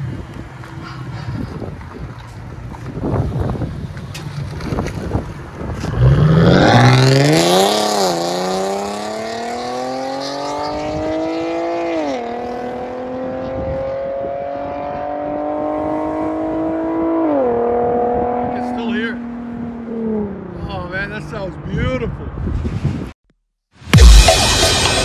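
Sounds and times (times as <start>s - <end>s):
car engine accelerating hard: 5.8s - 20.5s.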